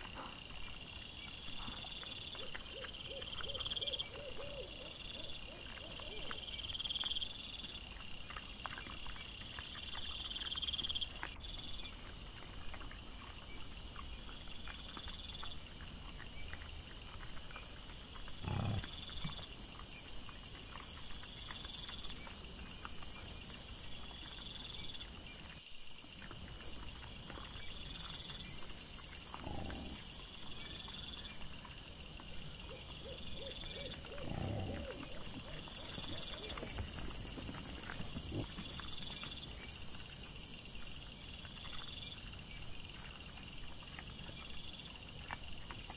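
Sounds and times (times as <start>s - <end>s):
small ticks and rustles: 0.0s - 45.9s
wild boar grunts: 18.3s - 19.4s, 29.2s - 30.3s, 33.1s - 39.3s
insects chirping in pulses: 26.7s - 42.9s.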